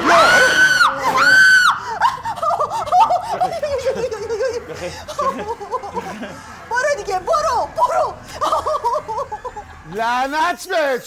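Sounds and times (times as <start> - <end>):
person screaming: 0.0 - 1.9
shrill wavering laughter: 0.0 - 10.0.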